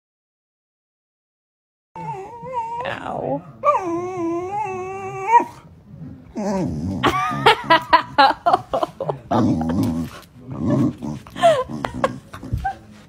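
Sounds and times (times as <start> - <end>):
dog whining and yipping: 2.0 - 5.6.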